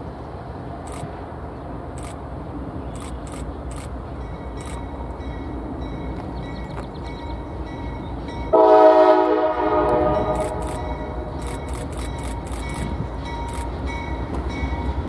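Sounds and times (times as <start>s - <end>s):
train horn blast: 8.5s - 11.3s.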